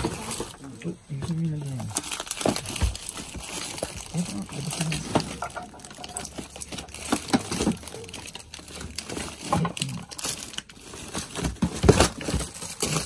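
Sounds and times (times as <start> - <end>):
plastic bags rustling: 0.0 - 13.0.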